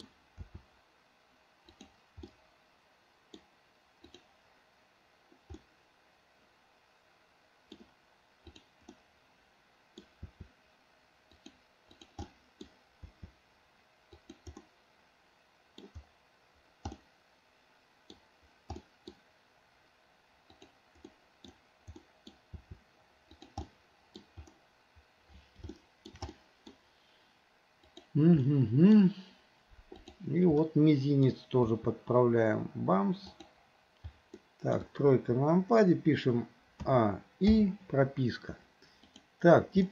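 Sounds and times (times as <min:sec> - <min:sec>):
computer mouse clicking: 0:00.0 - 0:00.7, 0:01.6 - 0:02.4, 0:03.3 - 0:04.3, 0:05.3 - 0:05.7, 0:07.7 - 0:09.0, 0:09.9 - 0:10.6, 0:11.3 - 0:13.4, 0:14.1 - 0:14.7, 0:15.7 - 0:16.1, 0:16.8 - 0:17.1, 0:18.0 - 0:19.2, 0:20.5 - 0:24.6, 0:25.3 - 0:26.8, 0:27.8 - 0:28.1, 0:29.9 - 0:30.2, 0:38.8 - 0:39.3.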